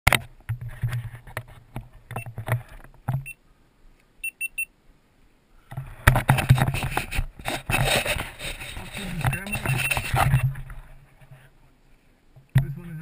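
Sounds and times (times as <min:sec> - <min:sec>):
high electronic beeps: 0:04.2 - 0:04.7, 0:09.0 - 0:10.5
clothing rustling on microphone: 0:05.8 - 0:12.2.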